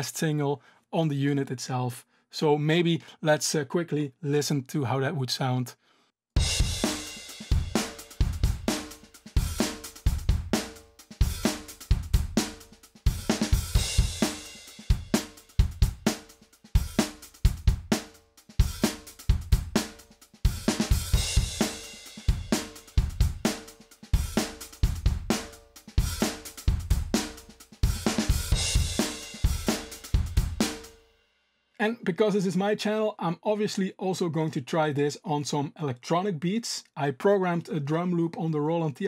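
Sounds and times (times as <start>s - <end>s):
acoustic drum kit beat: 6.4s - 31.0s.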